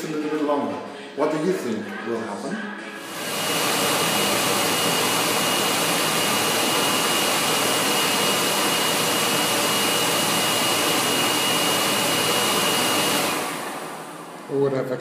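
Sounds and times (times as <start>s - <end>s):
electric hand dryer blowing: 3.0s - 15.0s.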